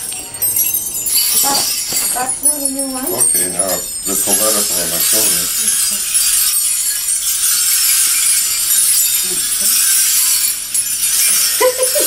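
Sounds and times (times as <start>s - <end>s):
sequins and bells jingling: 0.0s - 12.0s.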